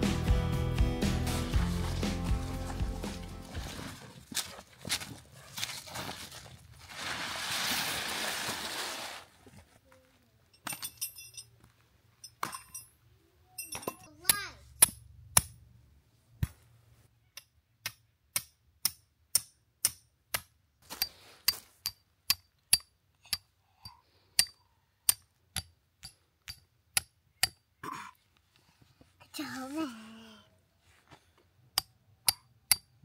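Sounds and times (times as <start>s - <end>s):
hammer striking metal stake: 13.6s - 15.6s, 17.4s - 23.4s, 24.4s - 27.6s, 31.8s - 33.0s.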